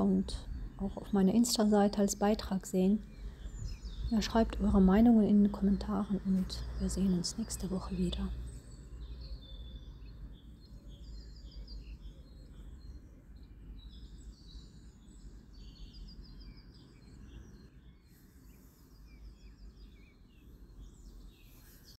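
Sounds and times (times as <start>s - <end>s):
low outdoor rumble: 0.0s - 9.7s
songbirds chirping and trilling: 0.0s - 22.0s.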